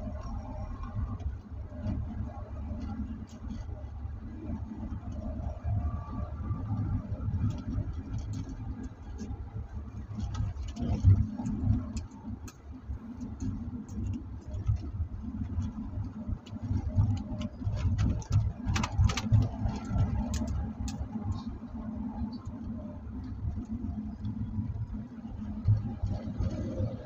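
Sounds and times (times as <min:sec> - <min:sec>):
car cabin road rumble: 0:00.0 - 0:27.0
light clicks and rattles: 0:07.4 - 0:24.8.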